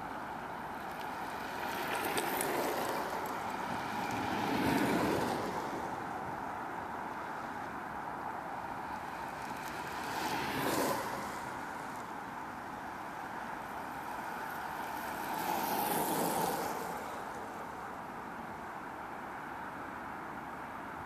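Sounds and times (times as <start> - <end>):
steady outdoor hiss: 0.0 - 21.0
tyre and wheel noise passing: 0.7 - 6.4, 8.6 - 12.1, 12.9 - 17.8.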